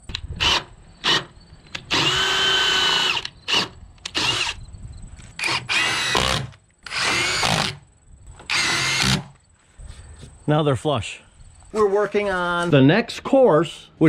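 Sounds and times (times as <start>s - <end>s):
cordless drill driving screws: 0.4s - 4.6s, 5.4s - 7.8s, 8.4s - 9.3s.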